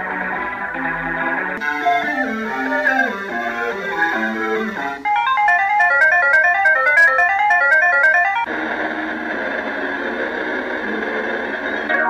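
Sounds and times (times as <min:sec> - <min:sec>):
electronic music: 0:00.2 - 0:08.5.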